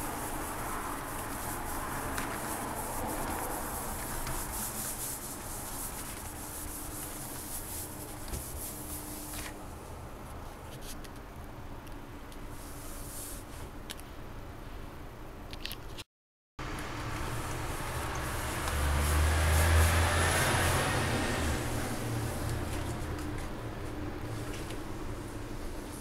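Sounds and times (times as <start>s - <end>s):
sponge scrubbing a hob: 0.0s - 9.4s, 17.3s - 23.1s.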